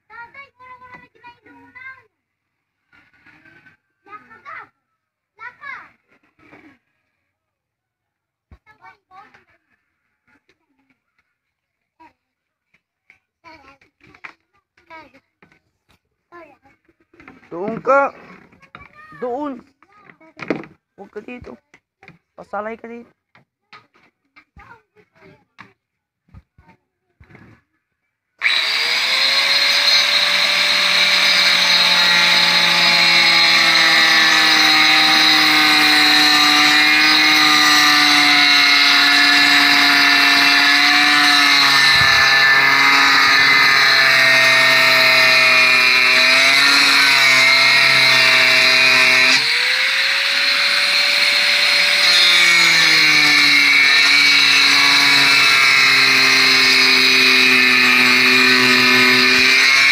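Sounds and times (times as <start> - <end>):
angle grinder grinding wood: 28.4 - 59.9.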